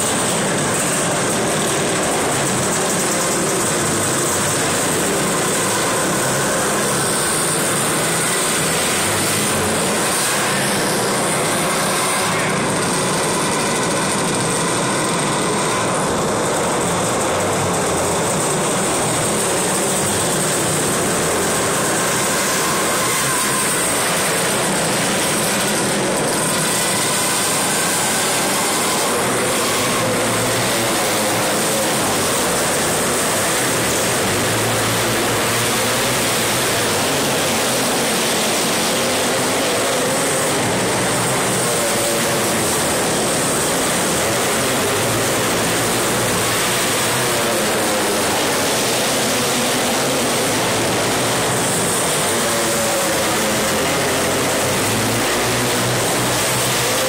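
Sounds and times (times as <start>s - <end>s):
racing kart engines droning: 0.0s - 57.0s.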